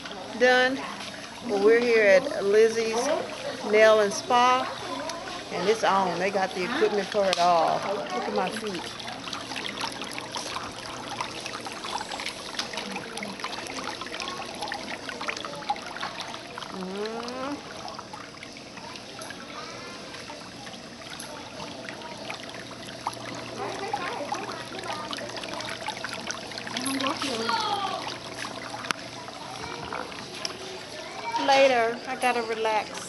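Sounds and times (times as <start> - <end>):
foot bath water bubbling and splashing: 0.0 - 33.0.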